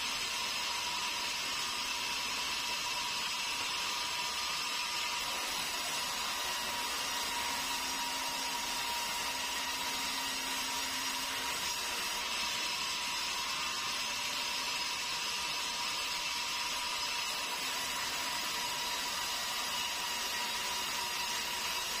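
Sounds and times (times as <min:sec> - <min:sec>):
band saw cutting timber: 0:04.8 - 0:22.0.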